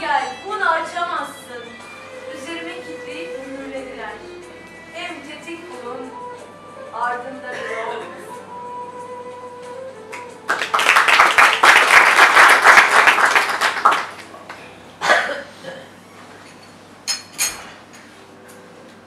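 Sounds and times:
audience applauding: 10.1s - 14.6s.

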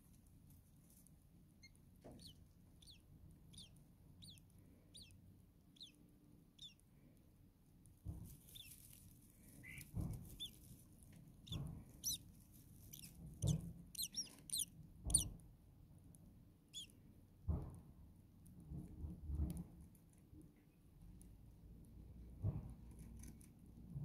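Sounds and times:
chicks rustling in nest: 0.0s - 5.1s, 8.0s - 15.4s
nestlings begging chirps: 1.6s - 6.8s, 8.4s - 8.9s, 9.6s - 10.6s, 11.4s - 15.3s, 16.7s - 16.9s.

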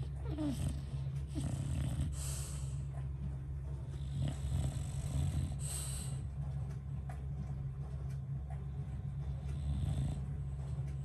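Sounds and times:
dog snoring: 0.0s - 3.0s, 3.8s - 6.3s, 8.7s - 11.0s.

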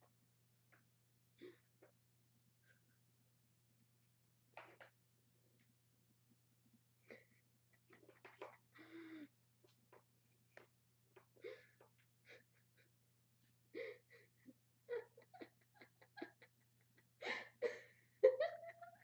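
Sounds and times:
person breathing and gasping: 8.7s - 9.4s
person chuckling: 13.8s - 19.0s.

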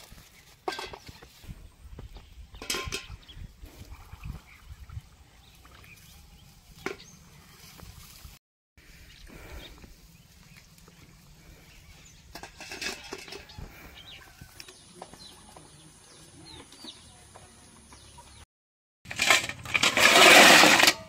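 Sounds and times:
snail shells clattering on metal: 19.1s - 21.0s.

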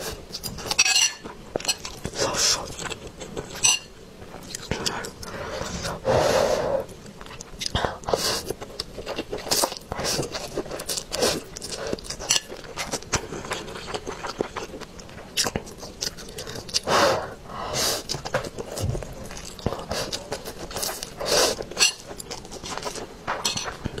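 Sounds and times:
wet chewing and smacking: 6.9s - 16.9s, 18.0s - 24.0s.

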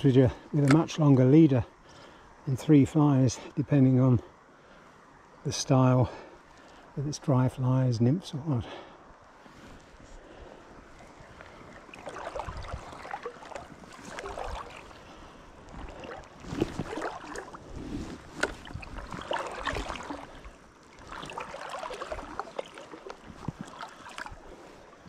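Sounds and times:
river water splashing: 8.4s - 25.0s.

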